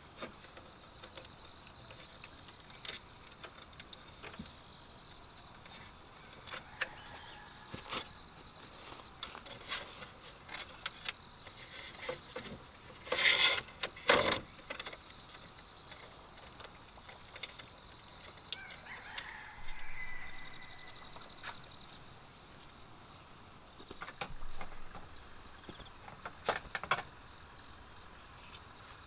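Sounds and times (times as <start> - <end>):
rooster crowing: 6.5 - 7.9, 18.6 - 21.3
bamboo poles knocking: 23.8 - 27.2.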